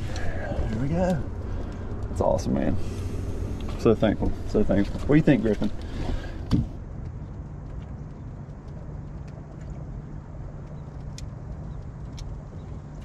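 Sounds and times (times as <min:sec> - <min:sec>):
boat motor humming: 0:00.0 - 0:13.0
faint ticks: 0:07.0 - 0:13.0.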